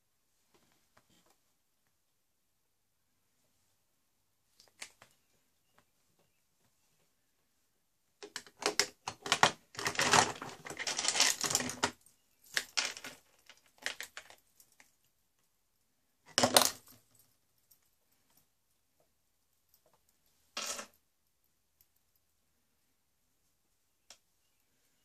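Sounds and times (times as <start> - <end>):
small hard objects clinking: 9.2 - 14.9.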